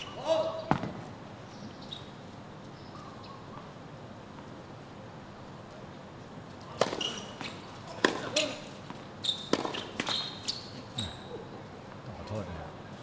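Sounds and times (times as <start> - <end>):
ball bouncing on hard court: 0.7 - 1.0, 6.8 - 8.4, 9.5 - 10.2
tennis ball hits: 6.7 - 8.6, 9.5 - 10.2
shoe squeaks: 6.8 - 7.7, 9.2 - 11.4.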